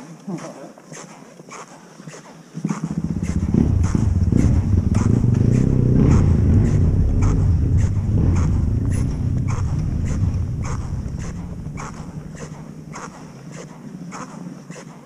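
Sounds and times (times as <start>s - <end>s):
dirt bike engine running: 2.8s - 13.6s.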